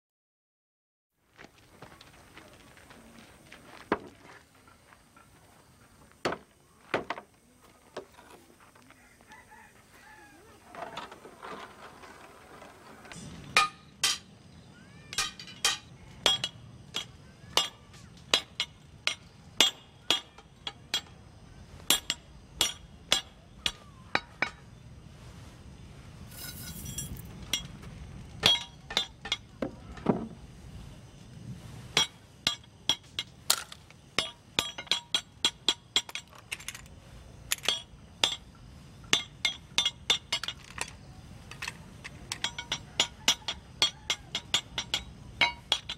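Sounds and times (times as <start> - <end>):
hammer striking metal on anvil: 13.6 - 14.3, 15.1 - 21.2, 21.9 - 24.6, 28.4 - 29.5, 34.2 - 36.3, 39.1 - 40.6, 42.3 - 45.9.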